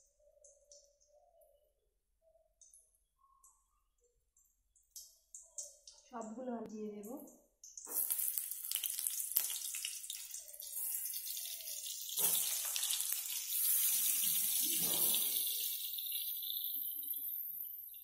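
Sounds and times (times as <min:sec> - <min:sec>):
hot oil sizzling in a wok: 0:07.6 - 0:18.0.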